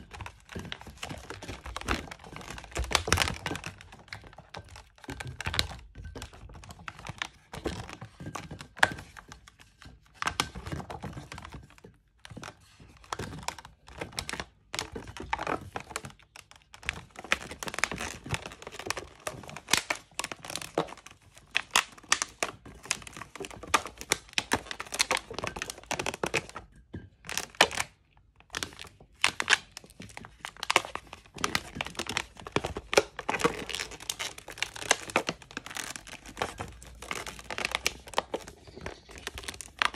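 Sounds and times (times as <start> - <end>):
balloons rubbing and crackling: 28.5 - 39.9.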